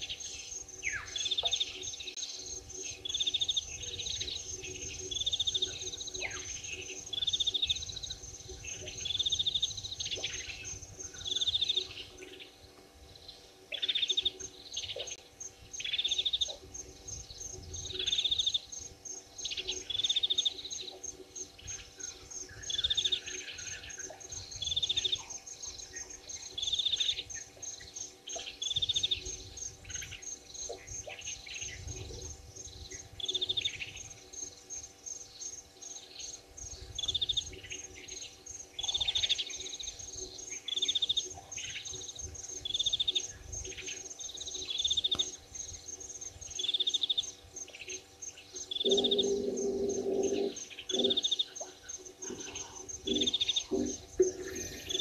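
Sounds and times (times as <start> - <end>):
insect ticking: 13.7 - 55.0
bird trilling: 48.7 - 51.5, 52.2 - 55.0.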